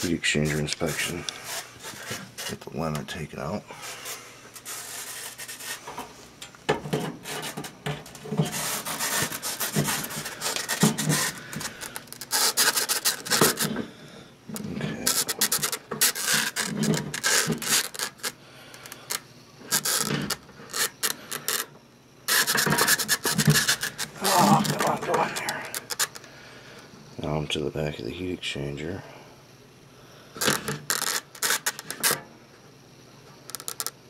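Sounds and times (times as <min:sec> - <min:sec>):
cable rubbing and scraping: 0:00.0 - 0:03.2, 0:03.8 - 0:06.2, 0:06.9 - 0:13.8, 0:14.6 - 0:21.6, 0:22.3 - 0:26.2, 0:30.4 - 0:32.2.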